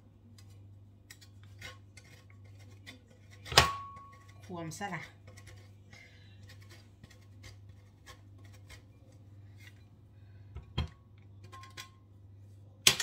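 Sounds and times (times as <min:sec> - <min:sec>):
cheese grating on metal grater: 0:00.3 - 0:09.9.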